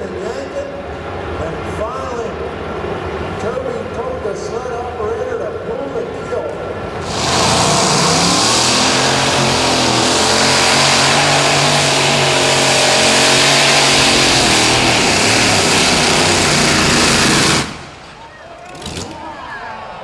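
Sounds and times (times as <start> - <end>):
tractor engine at full power: 6.7 - 19.3.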